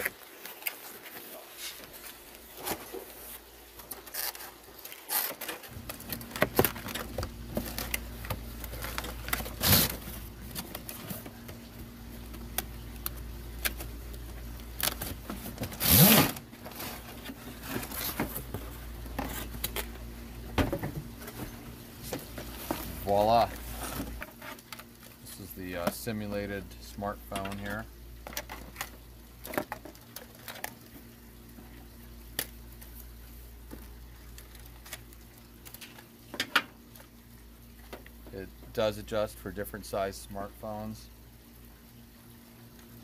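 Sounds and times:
cardboard scraping and sliding: 0:15.0 - 0:19.7, 0:21.3 - 0:24.4.

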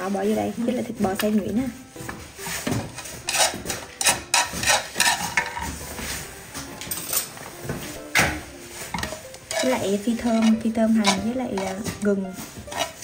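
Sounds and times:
utensil scraping: 0:00.0 - 0:06.4, 0:07.2 - 0:13.0
kitchen utensils knocking: 0:02.7 - 0:05.8, 0:08.2 - 0:13.0.

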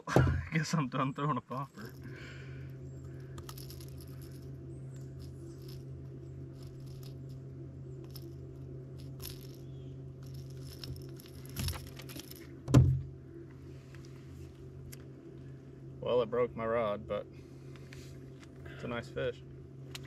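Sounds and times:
steady low hum: 0:00.0 - 0:20.0
fishing tackle clicking and rattling: 0:03.0 - 0:07.4, 0:08.0 - 0:12.6
loud thump on deck: 0:12.7 - 0:13.0.

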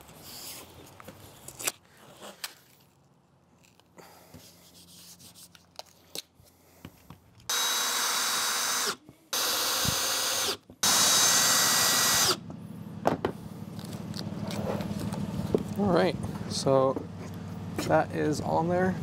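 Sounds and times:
cordless drill driving screws: 0:07.5 - 0:12.4.

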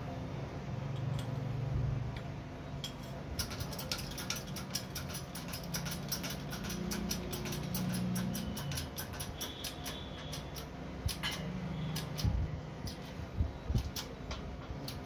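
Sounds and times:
fast even clicking: 0:03.4 - 0:11.2.

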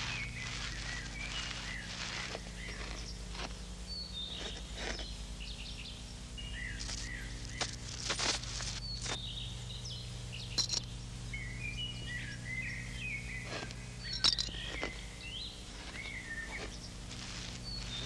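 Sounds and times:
small birds chirping: 0:00.0 - 0:18.0
steady low hum: 0:00.0 - 0:18.0.

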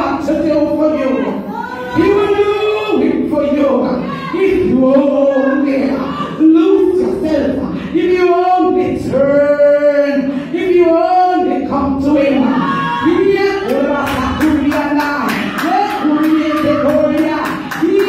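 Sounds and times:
hands clapping: 0:13.7 - 0:18.0.

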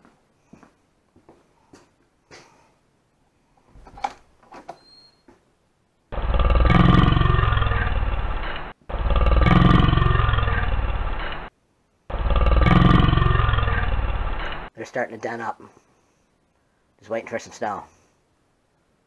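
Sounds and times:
rasping snore: 0:06.2 - 0:08.0, 0:08.9 - 0:10.7, 0:12.1 - 0:13.9.

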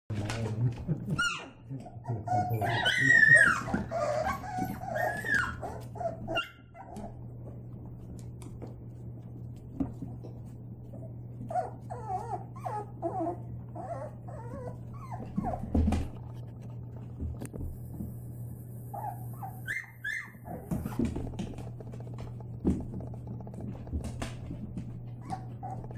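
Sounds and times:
puppies whimpering and yipping: 0:01.2 - 0:07.4, 0:10.9 - 0:16.1, 0:18.9 - 0:21.3, 0:25.1 - 0:25.9.

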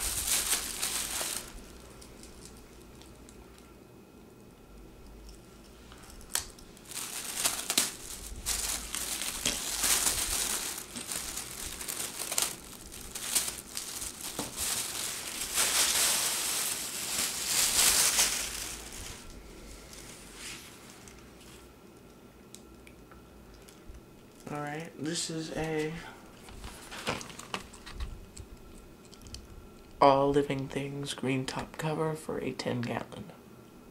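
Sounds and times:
plastic bag crinkling and rustling: 0:00.0 - 0:03.7, 0:05.9 - 0:21.7, 0:25.5 - 0:29.5.

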